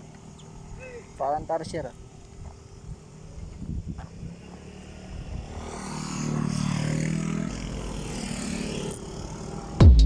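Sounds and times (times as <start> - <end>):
vehicle engine passing: 2.0 - 9.9.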